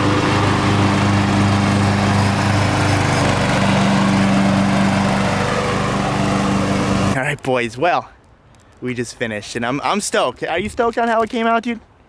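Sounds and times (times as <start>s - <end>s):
riding lawn mower engine drone: 0.0s - 7.2s.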